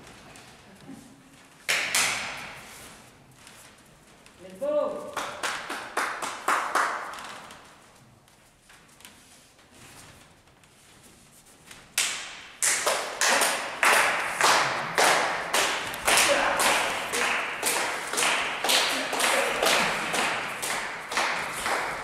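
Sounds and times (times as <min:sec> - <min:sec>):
crowd clapping in unison: 0:01.7 - 0:02.2, 0:05.0 - 0:07.3, 0:12.0 - 0:22.0.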